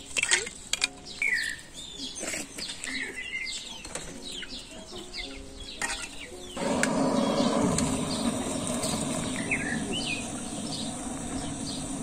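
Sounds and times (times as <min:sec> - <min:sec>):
small birds chirping: 0:00.0 - 0:12.0
gas torch hissing: 0:06.6 - 0:12.0.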